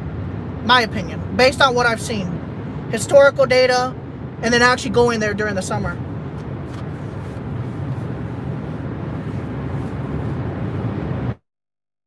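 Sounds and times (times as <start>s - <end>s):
car road and engine noise: 0.0s - 11.4s.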